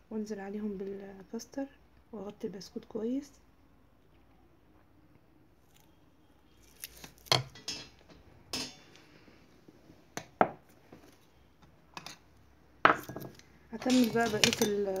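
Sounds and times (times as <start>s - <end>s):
glass bowls knocking and clinking: 12.9s - 14.8s.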